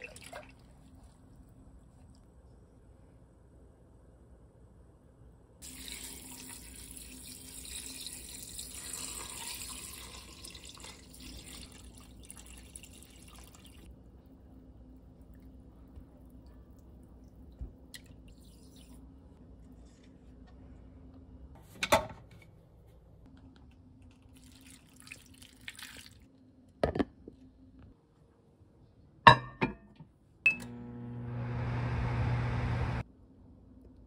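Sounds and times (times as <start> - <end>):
water trickling into bowls: 5.6 - 13.9, 24.3 - 26.3
bowls and utensils knocking: 29.3 - 30.0
microwave oven humming: 30.5 - 33.0.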